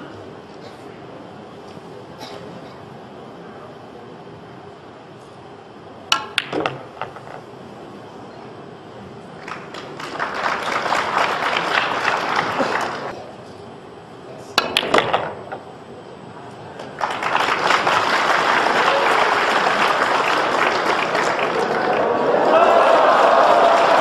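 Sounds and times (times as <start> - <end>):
cue striking ball: 6.1 - 7.4, 14.6 - 15.7
pool balls clicking: 6.1 - 7.5, 14.6 - 15.7
audience applauding: 9.4 - 13.1, 17.0 - 24.0.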